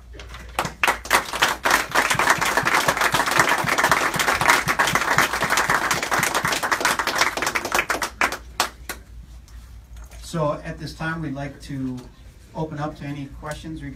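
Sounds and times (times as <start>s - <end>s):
people applauding: 0.3s - 9.0s.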